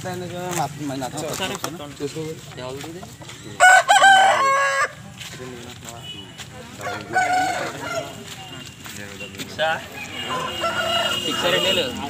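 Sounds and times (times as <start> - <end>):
faint market chatter: 0.0 - 12.0
rooster crowing: 3.6 - 5.0, 6.8 - 8.2, 9.9 - 11.8.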